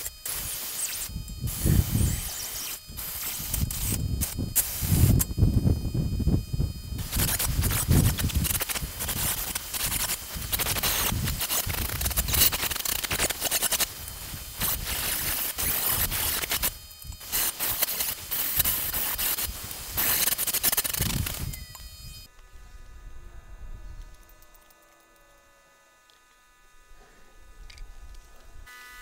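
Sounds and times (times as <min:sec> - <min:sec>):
angle grinder grinding steel: 0:00.0 - 0:22.3.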